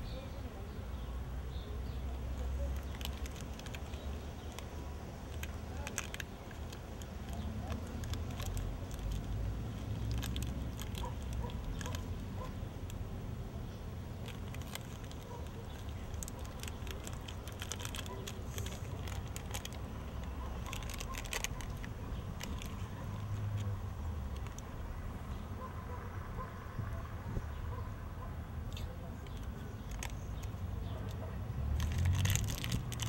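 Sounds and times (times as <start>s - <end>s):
chip bag crinkling: 2.4s - 13.0s, 14.2s - 24.8s, 29.2s - 30.6s, 31.6s - 33.0s.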